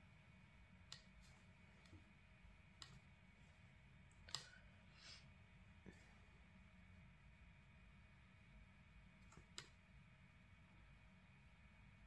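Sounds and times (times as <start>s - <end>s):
faint sharp clicks and taps: 0.8s - 3.3s, 4.0s - 4.6s, 9.2s - 9.9s.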